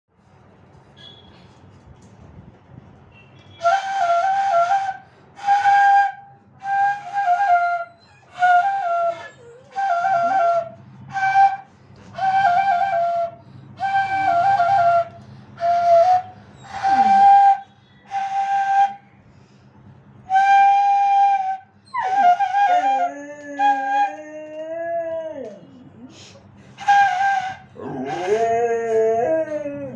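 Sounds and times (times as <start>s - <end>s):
bamboo flute phrases: 3.6s - 19.1s, 20.2s - 25.6s, 26.8s - 29.6s
dog howling: 16.0s - 17.6s, 21.9s - 25.9s, 26.9s - 29.9s.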